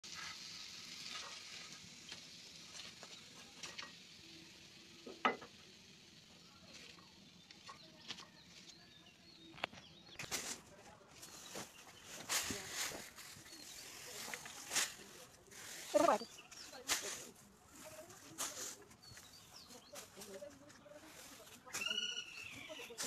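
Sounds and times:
food sizzling in hot oil: 0.0s - 10.1s.

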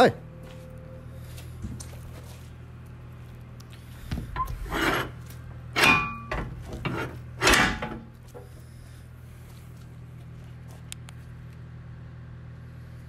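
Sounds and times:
metal panels knocking and scraping: 4.4s - 8.4s.

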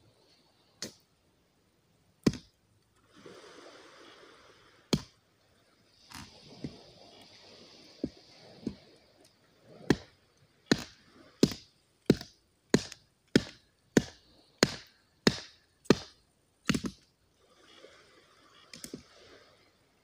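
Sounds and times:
knife chopping on wooden board: 2.2s - 2.5s, 10.7s - 16.1s, 16.7s - 17.0s.

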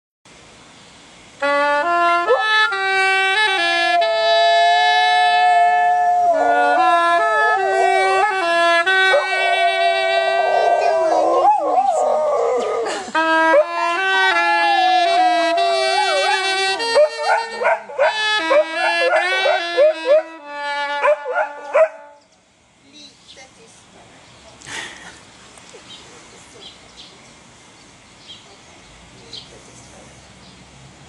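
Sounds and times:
clarinet playing slow melody: 1.4s - 22.3s
dog howling: 5.5s - 8.4s, 9.0s - 12.9s, 14.3s - 20.4s.

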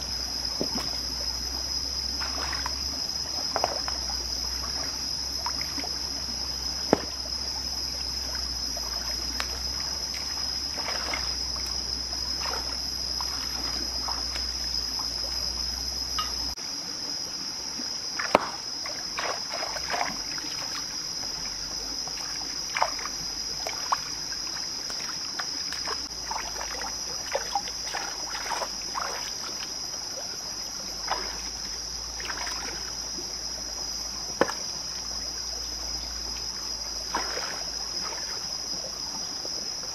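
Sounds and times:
stream trickling over rocks: 0.0s - 16.6s, 18.0s - 39.9s
water splashing: 2.0s - 15.4s, 18.2s - 33.2s, 37.0s - 39.6s.

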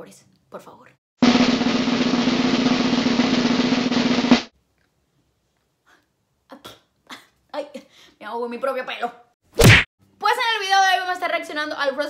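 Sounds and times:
drum roll: 1.2s - 4.5s.

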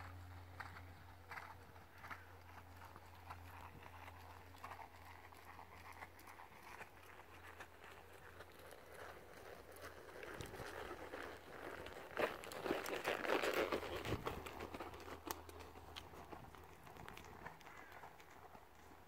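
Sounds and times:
steady low hum: 0.0s - 9.0s
muffled hoofbeats on soft ground: 0.0s - 19.0s.

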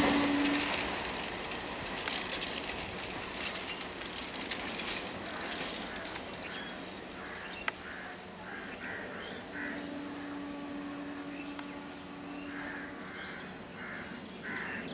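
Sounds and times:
steady low hum: 0.0s - 14.9s
crows cawing: 5.3s - 9.9s, 12.5s - 14.9s.

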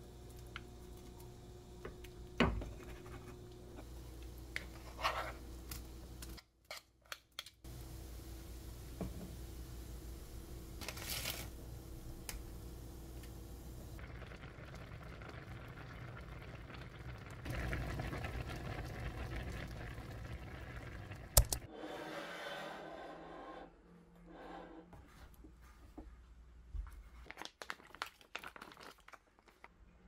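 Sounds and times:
soup boiling in a pot: 0.0s - 6.2s, 7.7s - 10.8s, 11.6s - 21.7s.

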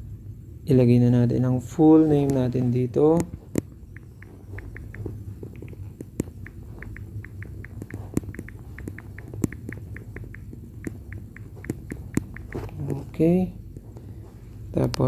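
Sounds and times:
low steady hum: 0.0s - 15.0s
touchscreen typing clicks: 3.5s - 13.1s.

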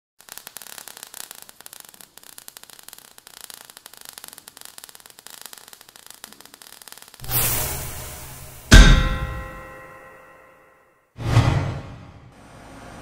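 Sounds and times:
crackling fizzing sparks: 0.2s - 9.7s.

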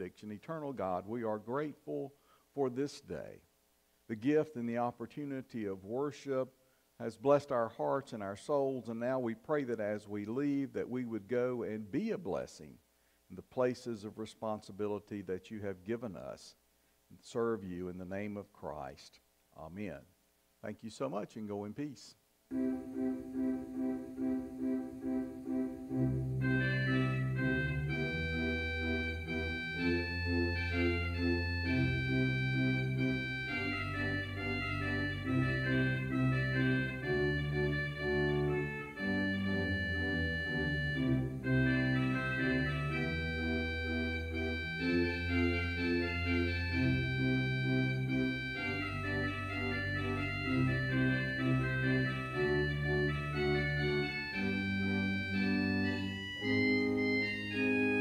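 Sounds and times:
organ playing slow chords: 22.5s - 58.0s.

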